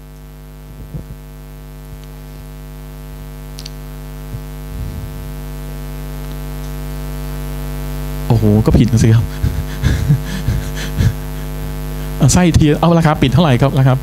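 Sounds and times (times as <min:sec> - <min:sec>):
electrical mains hum: 0:00.0 - 0:14.0.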